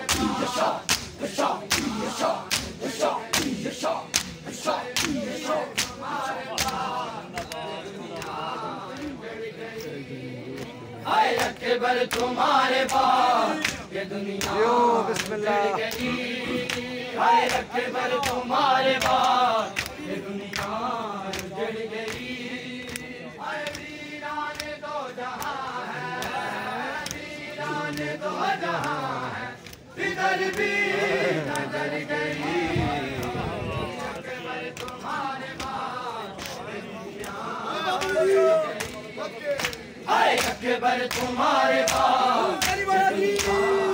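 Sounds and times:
hands slapping chests: 0:00.0 - 0:09.1, 0:11.3 - 0:27.3, 0:34.7 - 0:35.8, 0:36.4 - 0:37.4, 0:38.8 - 0:43.7
men chanting in unison: 0:00.0 - 0:43.9.

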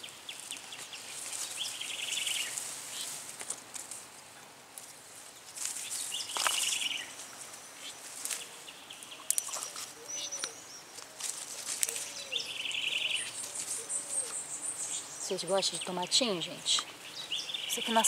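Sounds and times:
tomato plants rustling: 0:00.0 - 0:14.6.

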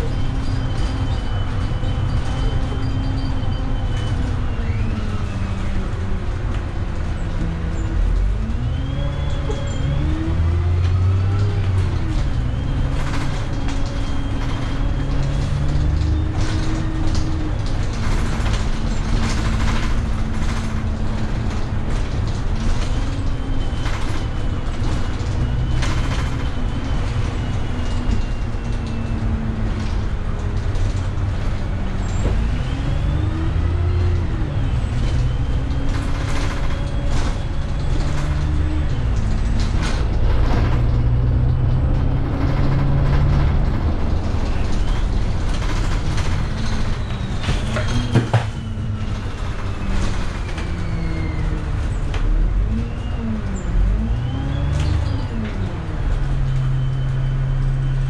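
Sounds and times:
bus engine accelerating: 0:00.0 - 0:58.0.

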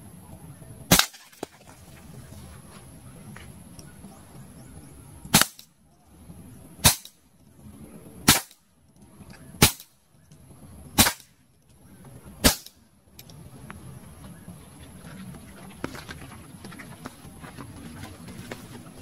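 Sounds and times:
air pistol shots: 0:00.9 - 0:01.5, 0:05.3 - 0:05.7, 0:06.8 - 0:07.2, 0:08.2 - 0:08.6, 0:09.6 - 0:10.0, 0:11.0 - 0:11.4, 0:12.4 - 0:12.8.

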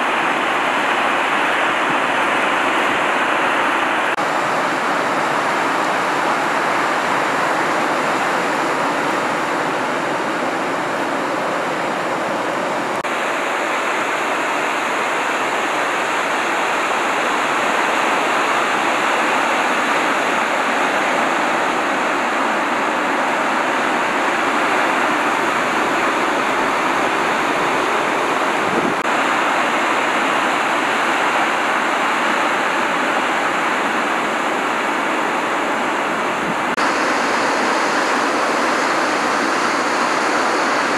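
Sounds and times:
ocean waves breaking: 0:00.0 - 0:40.9.

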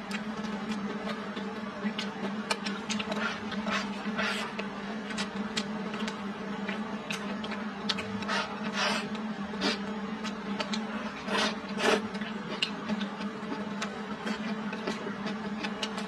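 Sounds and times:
steady low hum: 0:00.0 - 0:16.0
person chewing and smacking: 0:00.1 - 0:16.0
slurping: 0:10.6 - 0:12.7.

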